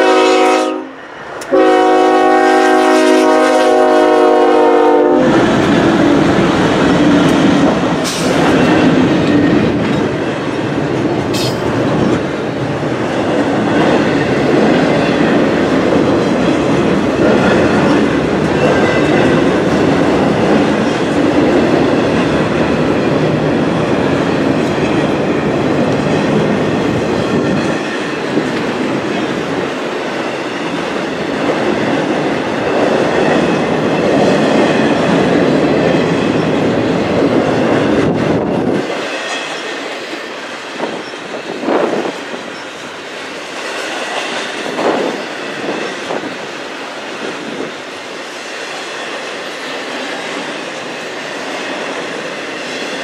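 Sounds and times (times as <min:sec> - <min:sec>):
locomotive horn blast: 0:00.0 - 0:05.4
train wheels rumbling on rails: 0:00.0 - 0:53.0.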